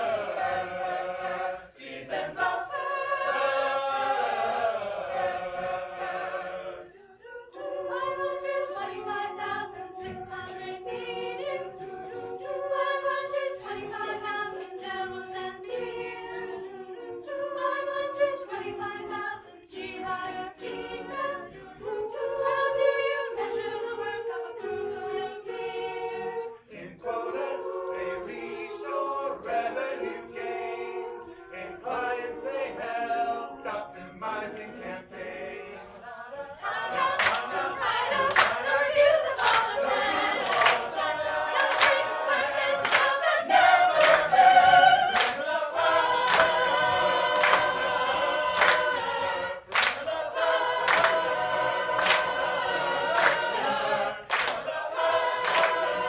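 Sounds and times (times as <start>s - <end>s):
a cappella choir singing: 0.0s - 56.0s
people clapping on the beat: 36.9s - 56.0s.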